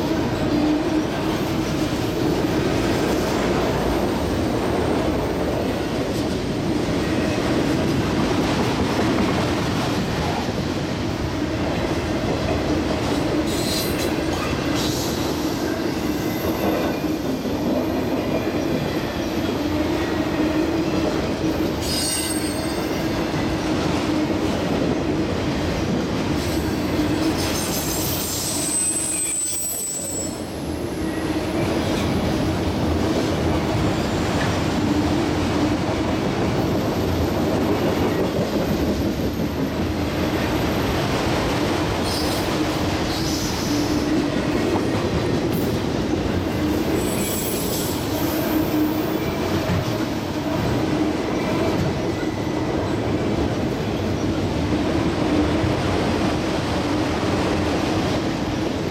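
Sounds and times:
train wheels rumbling on rail: 0.0s - 58.9s
high wheel squeals: 21.8s - 23.2s, 27.1s - 31.6s, 46.9s - 49.4s.

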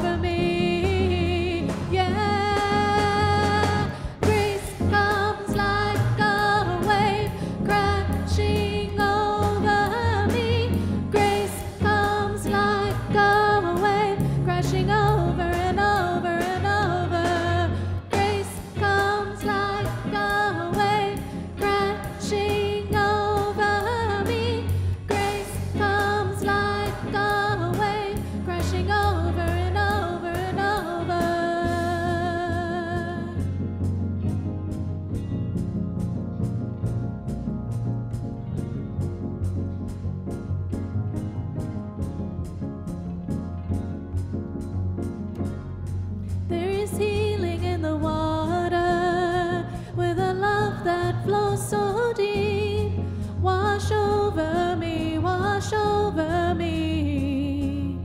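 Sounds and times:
woman singing: 0.0s - 33.5s, 46.5s - 58.0s
drum kit: 0.0s - 48.7s
bass guitar: 0.0s - 58.0s
electric guitar: 0.0s - 58.0s
keyboard: 0.0s - 58.0s.

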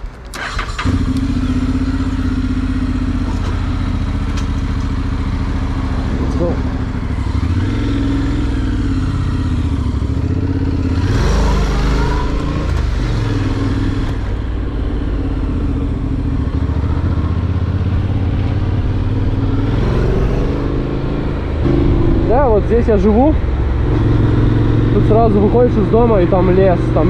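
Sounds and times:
motorcycle engine running: 0.8s - 27.0s
rush of noise: 11.0s - 26.2s.

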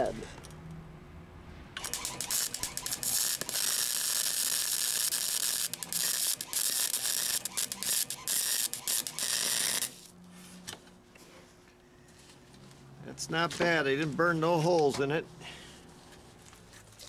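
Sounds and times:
welder arc crackling: 1.8s - 10.1s.

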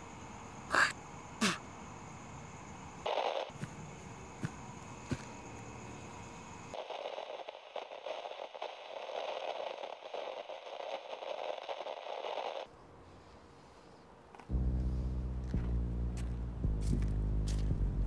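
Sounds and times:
crackling static noise: 3.0s - 12.8s
loud low drone: 14.5s - 18.0s.

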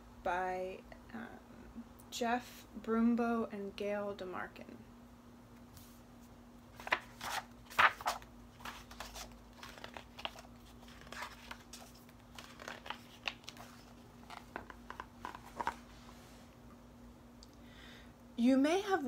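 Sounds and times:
book pages flipping: 6.8s - 16.2s.

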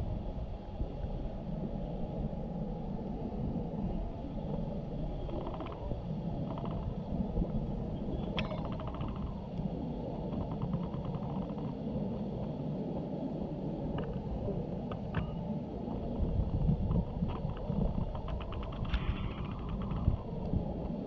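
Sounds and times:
wind buffeting microphone: 0.0s - 21.0s
faint clicks and rattles: 8.1s - 11.8s, 16.5s - 21.0s.

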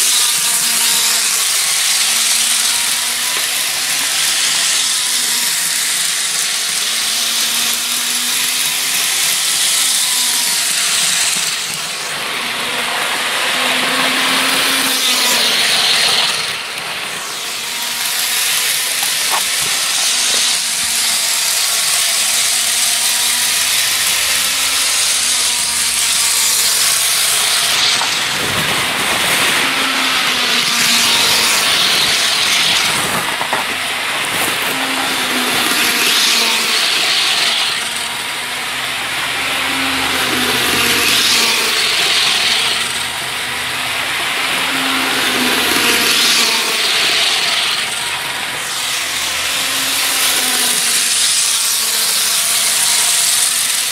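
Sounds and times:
model train motor whirring: 0.0s - 53.9s.

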